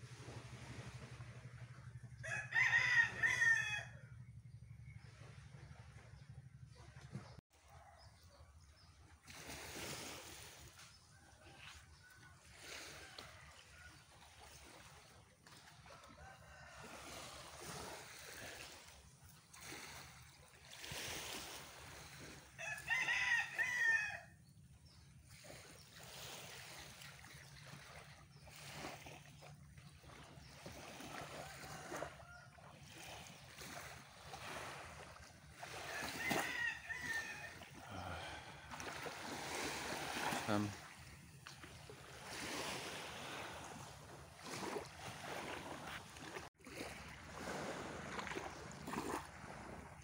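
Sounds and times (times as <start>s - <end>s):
rooster crowing: 2.2s - 4.0s, 16.0s - 17.6s, 22.6s - 24.4s, 31.2s - 32.6s, 35.6s - 38.8s.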